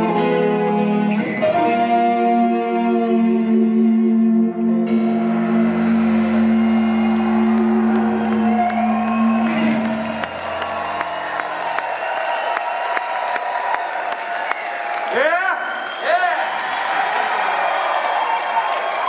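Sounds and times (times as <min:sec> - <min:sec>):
rock band holding guitar chords: 0:00.0 - 0:12.2
low rumble: 0:04.0 - 0:12.2.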